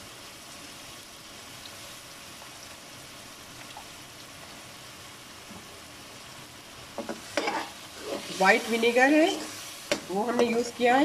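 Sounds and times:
sauce sizzling in a wok: 0.0 - 11.0.

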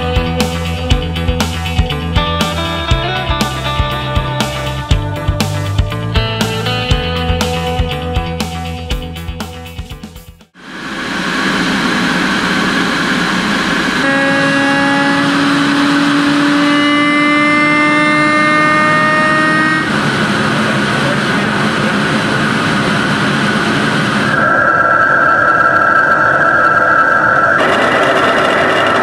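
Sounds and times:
shaker table buzzing: 27.6 - 29.0.

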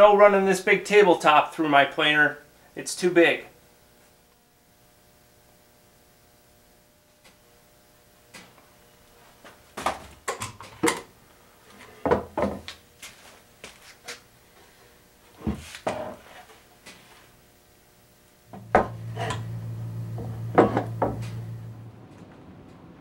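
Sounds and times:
low steady hum: 0.0 - 23.0
wooden boards knocking: 20.2 - 21.4.

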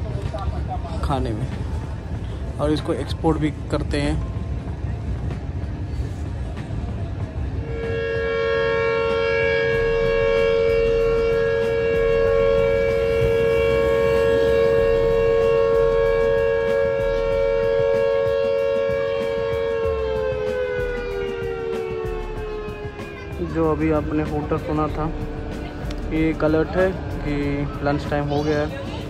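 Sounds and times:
low rumble: 0.0 - 29.0
factory siren long steady tone: 6.3 - 29.0.

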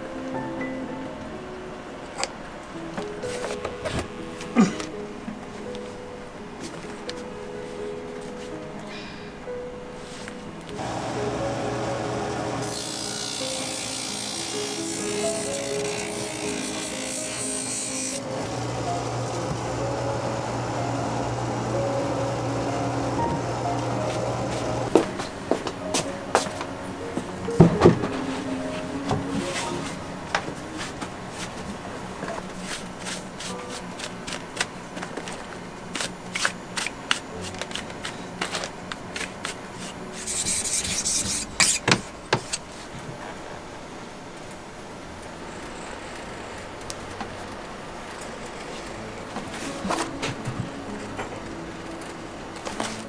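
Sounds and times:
background music: 0.0 - 41.4, 48.4 - 53.0
rubber grinding on sanding wheel: 12.6 - 19.4.

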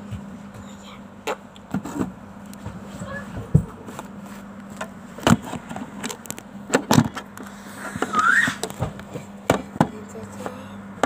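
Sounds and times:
faint hum: 0.0 - 11.0
short rising falling squeak: 8.0 - 8.6.

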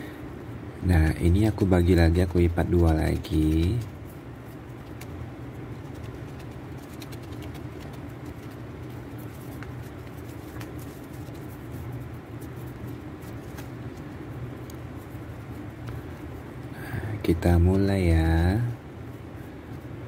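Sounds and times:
low background hum: 0.0 - 20.0
paper crinkling: 1.4 - 16.7.

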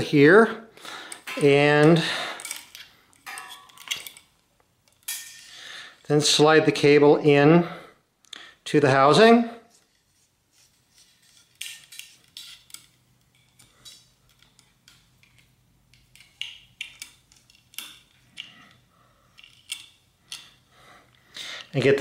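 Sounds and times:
metal cable scraping and clinking: 1.2 - 4.3.

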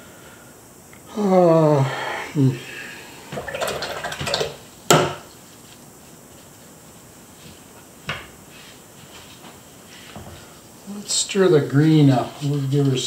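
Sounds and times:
man humming: 1.0 - 3.2
brush swishing in water jar: 8.4 - 13.0.

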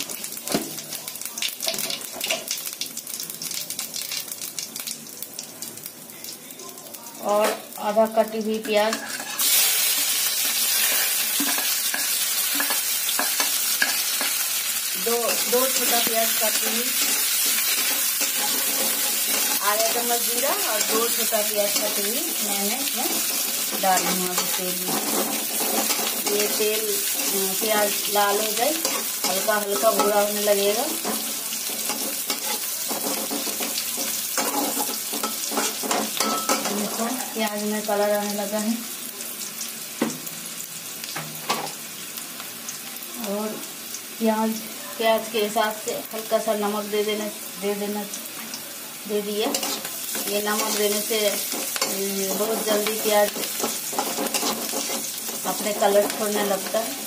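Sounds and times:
onion sizzling in hot oil: 0.0 - 57.0
metal spatula scraping pan: 8.6 - 9.7, 10.4 - 14.4, 15.3 - 19.9, 23.0 - 28.0, 28.7 - 37.3, 49.4 - 56.6
steel spoon clinking and scraping: 16.6 - 19.6, 31.0 - 36.8, 49.5 - 50.8, 51.4 - 56.2.

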